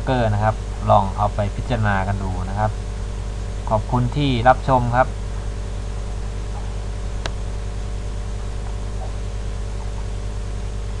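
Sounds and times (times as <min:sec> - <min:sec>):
constant hiss: 0:00.0 - 0:11.0
electrical hum: 0:00.0 - 0:11.0.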